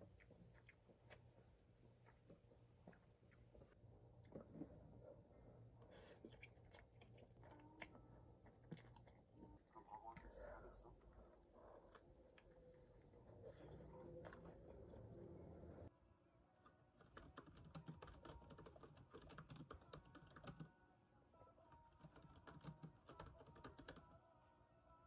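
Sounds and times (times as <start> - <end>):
faint eating sounds: 0.0 - 25.0
typing on laptop keyboard: 17.0 - 20.7, 21.8 - 24.1.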